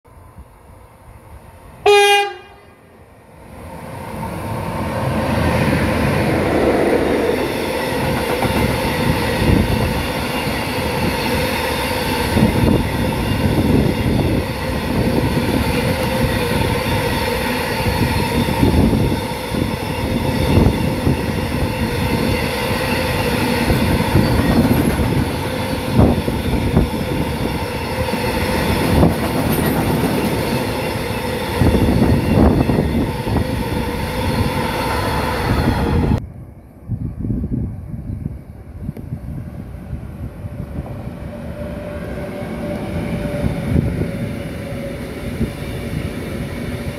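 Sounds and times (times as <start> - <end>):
train wheels running on rails: 4.1 - 36.2.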